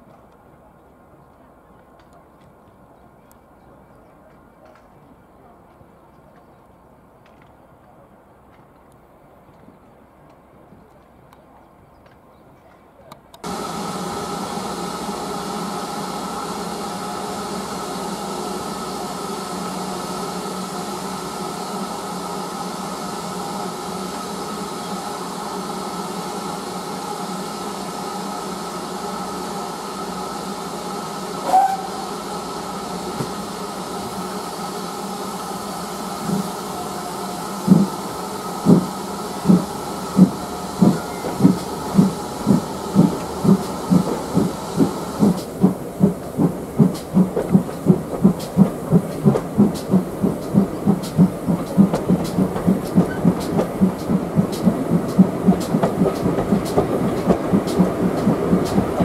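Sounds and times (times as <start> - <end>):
locomotive exhaust beats: 13.4 - 59.0
steam hissing: 13.4 - 59.0
steam locomotive whistle: 13.5 - 45.2.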